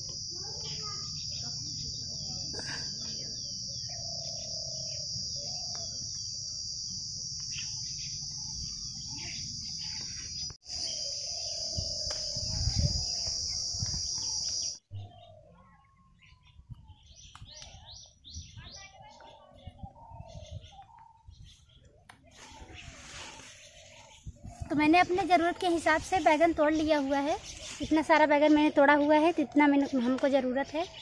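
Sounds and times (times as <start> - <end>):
high-pitched insect drone: 0.0 - 14.8
birds chirping: 0.0 - 31.0.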